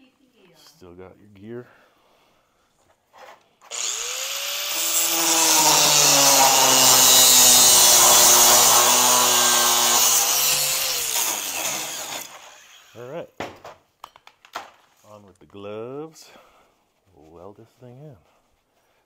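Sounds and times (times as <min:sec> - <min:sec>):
angle grinder cutting steel: 0:03.7 - 0:13.0
grinder winding down: 0:03.7 - 0:13.0.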